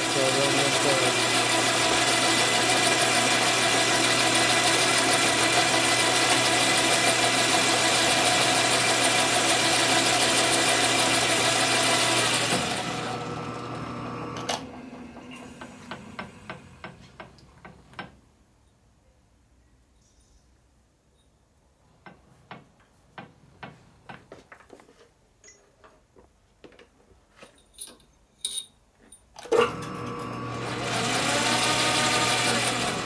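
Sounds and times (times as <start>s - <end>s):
metal lathe running: 0.0s - 16.9s, 29.5s - 33.0s.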